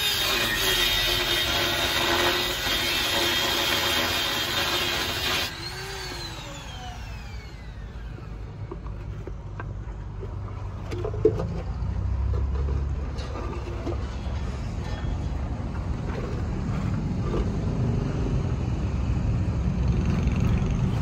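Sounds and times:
angle grinder cutting metal pipe: 0.0 - 8.1.

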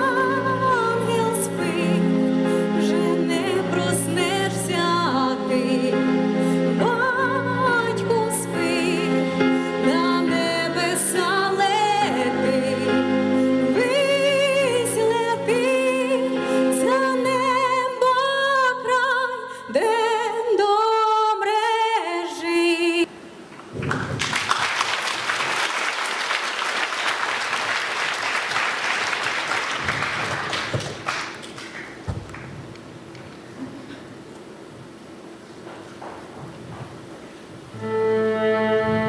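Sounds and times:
musical accompaniment: 0.0 - 18.0, 37.6 - 39.0
woman singing with vibrato: 0.0 - 23.1
audience applauding: 23.6 - 32.8.

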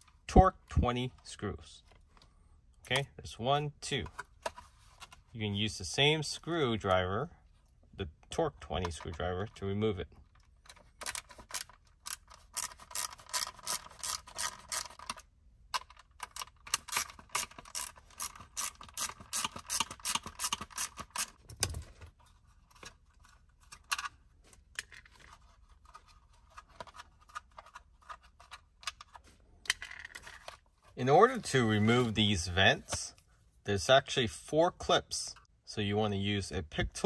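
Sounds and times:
ratcheting screwdriver clicking: 11.0 - 15.2, 15.8 - 21.4.

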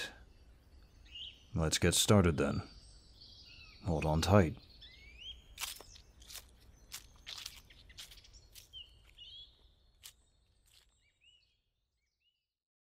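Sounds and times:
short bird chirps: 2.6 - 12.4
footsteps crunching on forest floor: 5.2 - 11.6.

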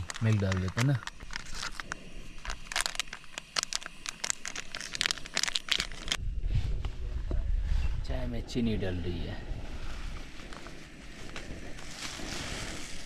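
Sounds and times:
foil sachet crinkling and tearing: 0.0 - 6.2
low rumble: 5.8 - 13.0.

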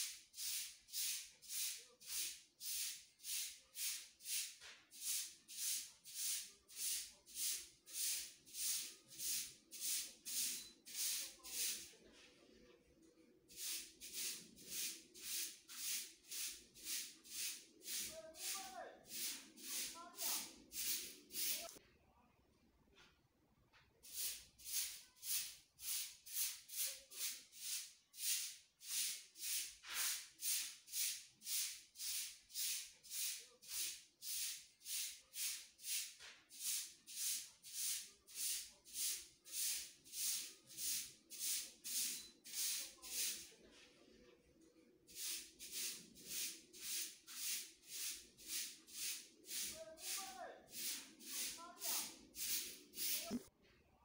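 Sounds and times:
short high hissing strokes: 13.6 - 21.8.

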